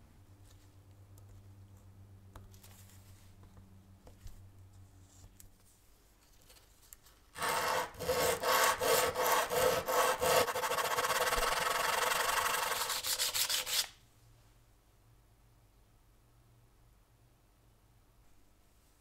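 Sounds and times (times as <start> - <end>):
sandpaper rasping: 7.4 - 13.9.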